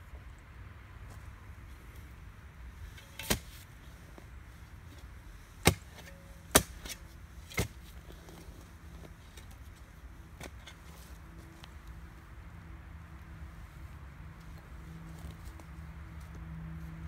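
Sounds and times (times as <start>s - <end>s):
spade chopping into ground: 2.9s - 3.7s, 5.6s - 8.0s.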